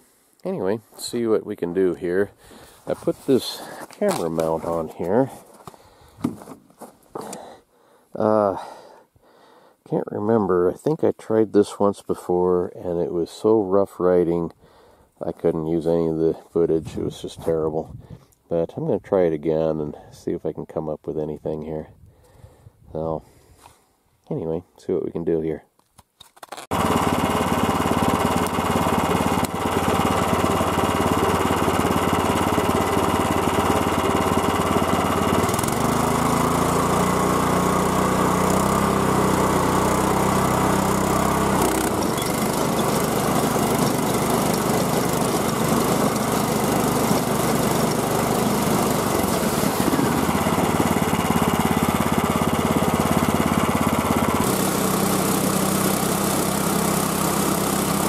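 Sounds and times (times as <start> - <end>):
gasoline engine running under load: 26.7 - 58.0.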